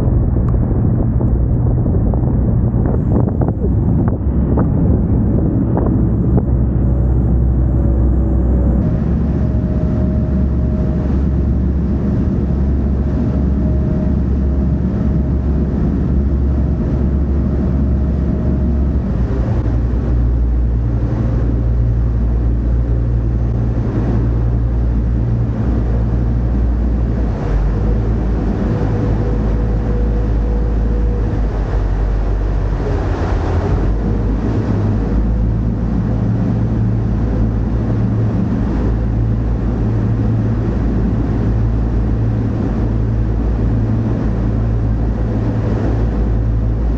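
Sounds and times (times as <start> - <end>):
boat engine droning: 0.0 - 46.9
wake churning water: 0.0 - 46.9.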